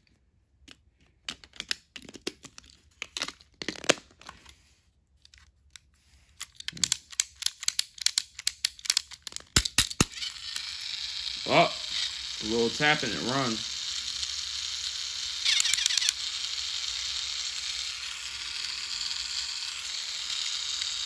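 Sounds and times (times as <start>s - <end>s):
hands handling plastic toy train: 0.0s - 9.9s.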